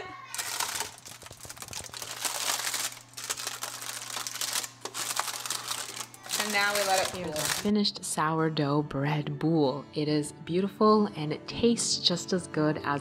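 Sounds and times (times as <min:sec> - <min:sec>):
paper crinkling and rustling: 0:00.2 - 0:07.7.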